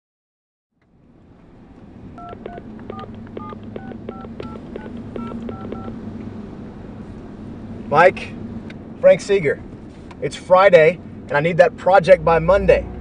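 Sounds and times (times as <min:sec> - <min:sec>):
steady low hum: 0:01.0 - 0:10.2
telephone keypad beeps: 0:02.2 - 0:05.9.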